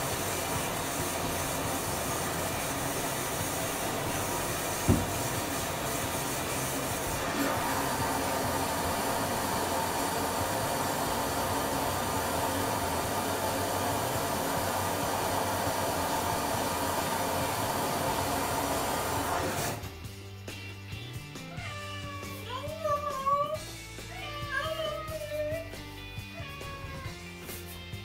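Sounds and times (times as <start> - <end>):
water running into bathtub: 0.0 - 19.8.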